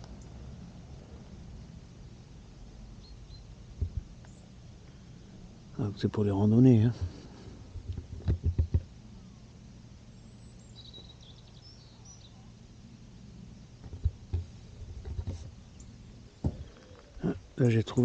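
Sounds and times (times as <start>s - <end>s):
low steady rumble: 0.0s - 18.0s
small bird chirping: 3.0s - 3.6s, 4.2s - 4.6s, 8.4s - 12.6s, 15.4s - 18.0s
low thumps: 3.8s - 4.2s.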